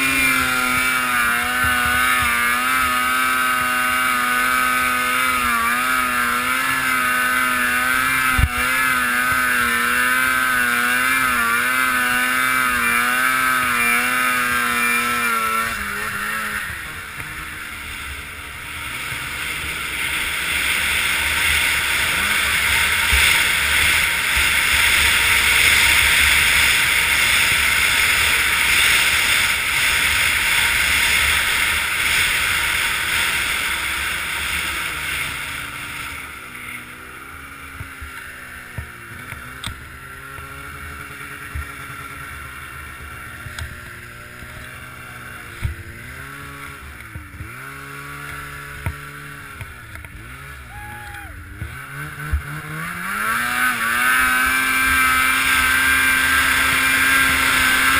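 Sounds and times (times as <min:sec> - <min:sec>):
rush of wind and snow: 0:00.0 - 0:57.9
snowmobile engine revving: 0:00.0 - 0:57.9.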